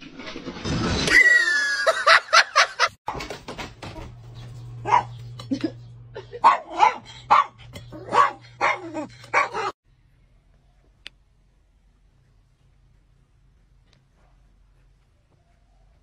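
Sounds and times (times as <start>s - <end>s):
low steady hum: 4.0s - 15.3s
small dog barking: 4.8s - 5.2s, 6.4s - 9.8s.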